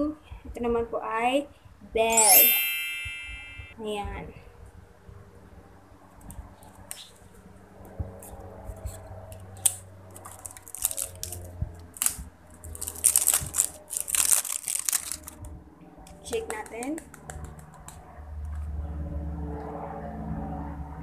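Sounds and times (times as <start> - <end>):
packaging clicks and rustles: 9.6 - 15.4
packaging crinkling and tearing: 9.6 - 15.4.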